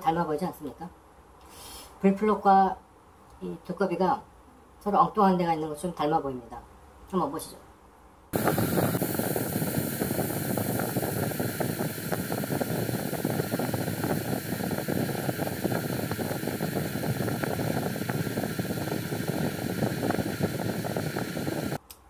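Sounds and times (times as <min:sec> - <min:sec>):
steady rushing noise: 0:08.4 - 0:21.8.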